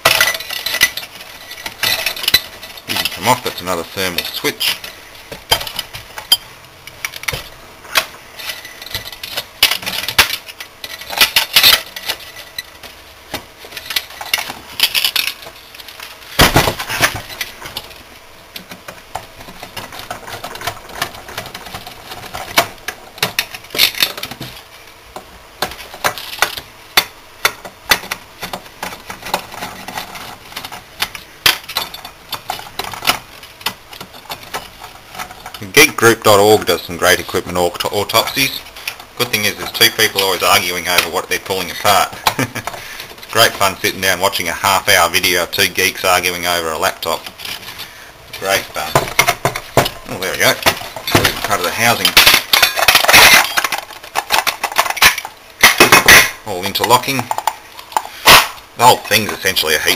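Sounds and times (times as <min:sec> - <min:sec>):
metal tools clinking and rattling: 0:00.0 - 0:06.4, 0:08.4 - 0:12.8, 0:13.7 - 0:16.1, 0:48.4 - 0:58.4
metal parts clattering: 0:00.0 - 0:18.1, 0:18.8 - 0:24.7, 0:25.6 - 0:59.9.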